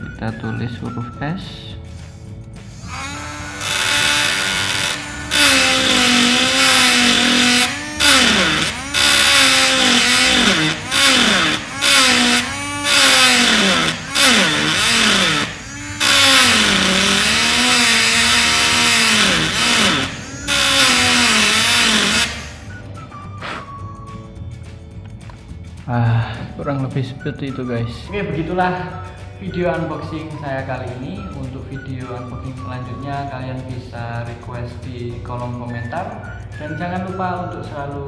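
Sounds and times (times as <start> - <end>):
engraving pen buzzing on wood: 2.6 - 22.8.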